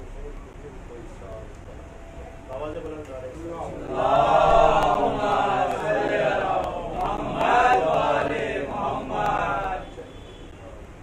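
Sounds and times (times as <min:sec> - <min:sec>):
speech: 0:00.0 - 0:03.9
man chanting a recitation: 0:02.8 - 0:10.9.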